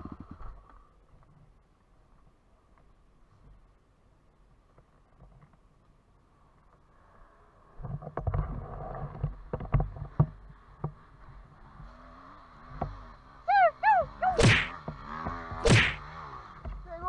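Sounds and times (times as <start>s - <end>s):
distant dirt bike engine: 6.7s - 17.0s.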